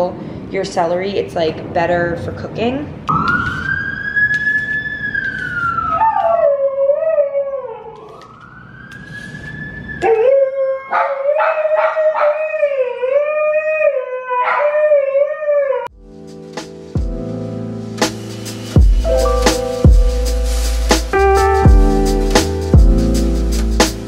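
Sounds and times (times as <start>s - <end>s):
siren wailing: 3.1s - 15.9s
dog howling: 5.2s - 8.2s, 10.0s - 15.9s.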